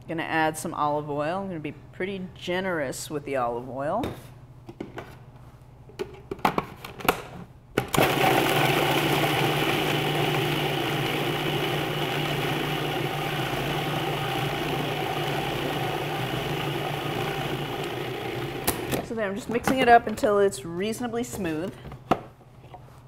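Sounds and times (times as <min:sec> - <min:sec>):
food processor motor humming: 0:07.9 - 0:19.0.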